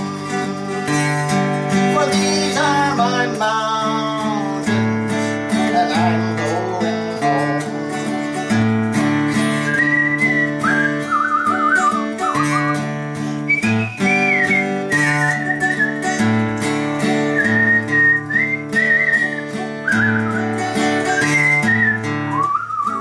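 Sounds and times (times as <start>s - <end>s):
acoustic guitar strumming: 0.0s - 23.0s
man whistling a melody: 0.0s - 23.0s.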